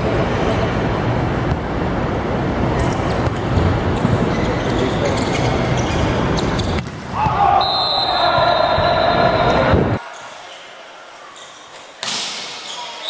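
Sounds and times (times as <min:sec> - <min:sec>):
loud hall din with voices: 0:00.0 - 0:13.0
volleyball slaps: 0:06.6 - 0:07.5.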